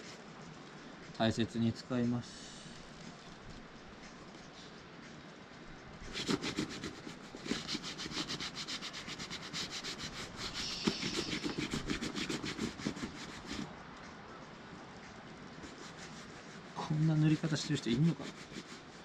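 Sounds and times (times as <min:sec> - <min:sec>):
hand rubbing leather: 0:06.0 - 0:13.8, 0:15.5 - 0:19.0.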